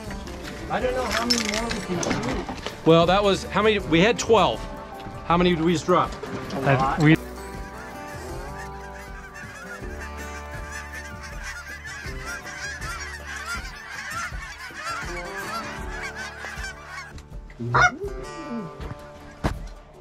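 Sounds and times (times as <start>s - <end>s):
flock of geese honking: 5.4s - 17.2s.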